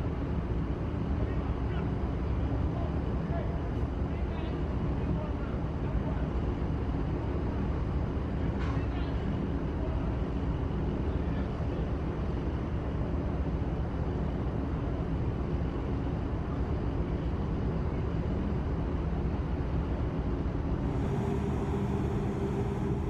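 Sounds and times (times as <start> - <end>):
low mechanical rumble: 20.6 - 23.0
faint hum: 20.8 - 23.0.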